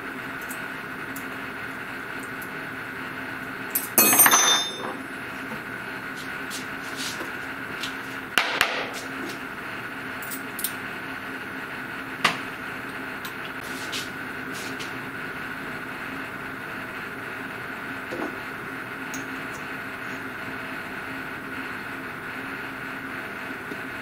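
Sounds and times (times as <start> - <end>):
steady background hum: 0.0 - 24.0
metal tools clattering on metal: 3.8 - 5.0.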